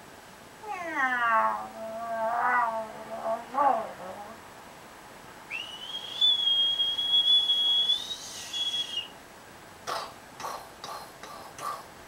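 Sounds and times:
person whistling: 5.5s - 9.1s.

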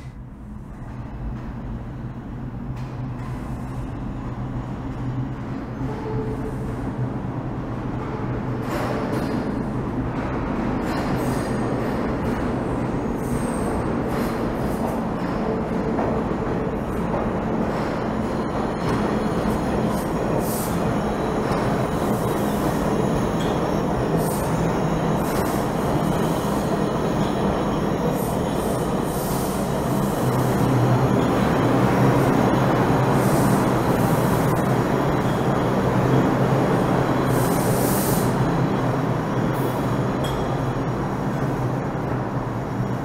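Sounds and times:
subway train rolling rumble: 0.0s - 43.0s.

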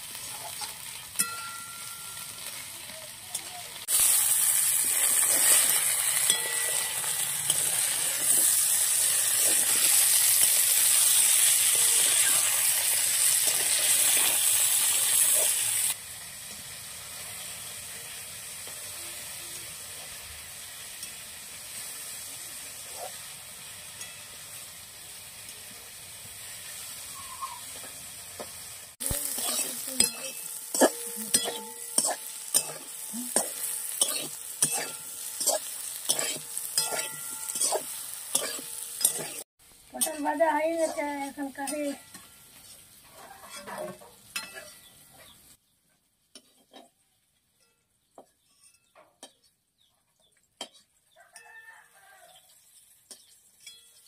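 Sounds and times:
vegetables sizzling in a pan: 0.0s - 54.0s
metal spatula scraping a pan: 3.8s - 16.0s, 29.0s - 45.5s, 46.3s - 47.0s, 47.6s - 49.5s, 50.6s - 51.0s.

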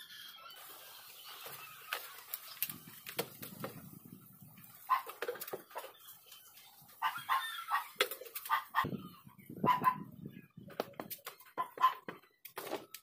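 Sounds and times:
animals calling: 0.0s - 12.3s
foam rustling and clicking: 0.6s - 7.0s.

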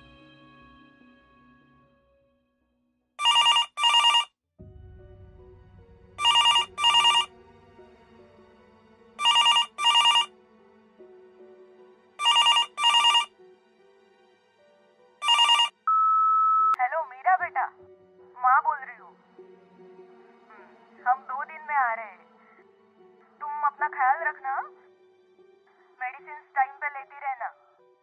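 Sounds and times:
desk telephone ringing: 3.2s - 4.3s, 6.2s - 7.3s, 9.2s - 10.3s, 12.2s - 13.3s, 15.2s - 16.8s
quiet background music: 4.6s - 28.0s.

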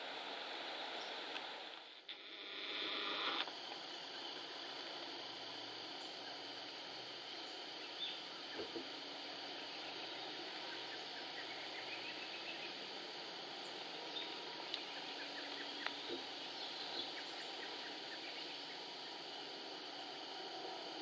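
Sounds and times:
rural background hiss: 0.0s - 21.0s
faint bird chirps: 5.9s - 20.2s
soft ticks: 14.7s - 14.9s.

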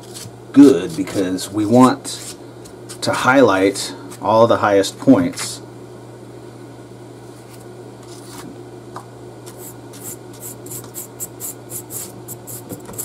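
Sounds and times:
paintbrush scratching on foam: 9.6s - 13.0s.

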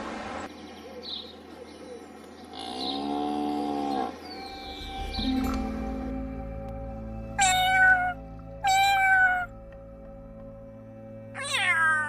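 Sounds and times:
cat meowing: 7.4s - 9.5s, 11.4s - 12.0s.

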